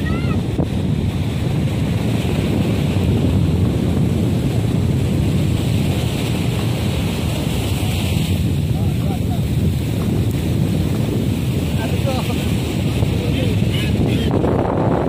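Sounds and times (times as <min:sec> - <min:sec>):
sea surf rushing: 0:00.0 - 0:15.0
wind buffeting microphone: 0:00.0 - 0:15.0.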